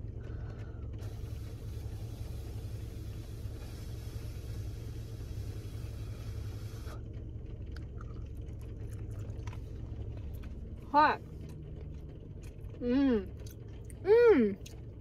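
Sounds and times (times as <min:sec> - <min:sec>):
car engine idling: 0:00.0 - 0:15.0
broad hiss: 0:01.0 - 0:07.0.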